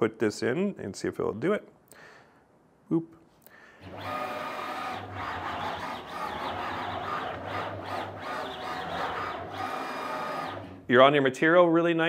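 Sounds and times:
stepper motors whining: 3.8s - 10.9s.

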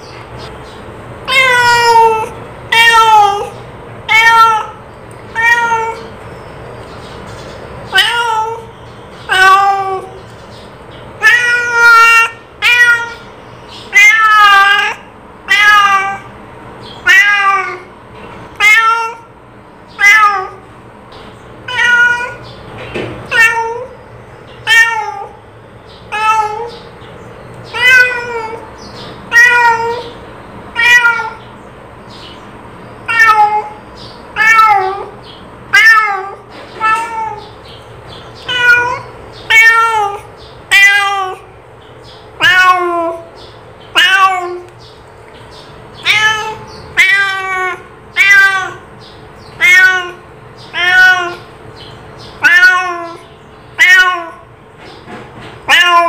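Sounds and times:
cat meowing: 1.2s - 6.1s, 7.9s - 10.2s, 11.2s - 13.3s, 13.9s - 16.3s, 16.9s - 17.9s, 18.5s - 20.7s, 21.6s - 22.5s, 23.2s - 24.0s, 24.6s - 25.4s, 26.1s - 26.9s, 27.7s - 31.5s, 33.0s - 37.7s, 38.4s - 41.5s, 42.4s - 44.7s, 45.9s - 51.6s, 52.3s - 54.5s, 55.6s - 56.0s.

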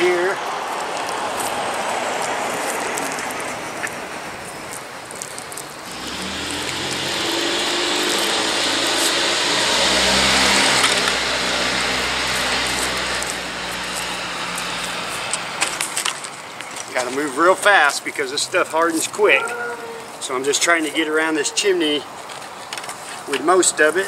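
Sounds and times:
vehicle driving past: 5.9s - 16.6s.

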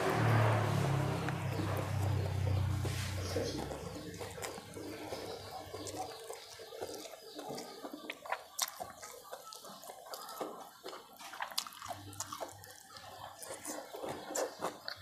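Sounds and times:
low hum: 0.0s - 4.9s
wet chewing: 0.1s - 15.0s
mouth clicks and smacks: 3.4s - 15.0s.

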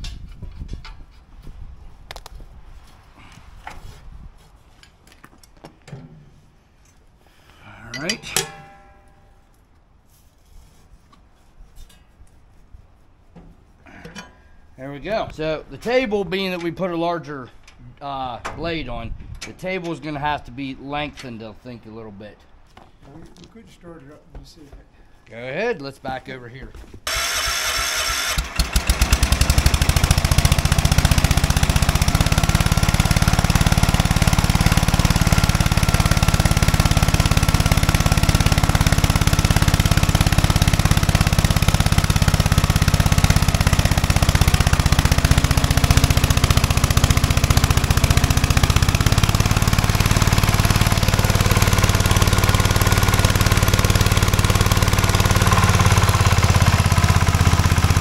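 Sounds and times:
garden tractor engine running: 7.9s - 9.2s, 27.1s - 58.0s.

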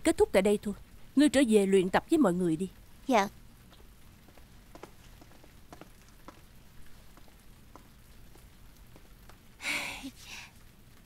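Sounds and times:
person exhaling breathily: 9.6s - 10.6s.

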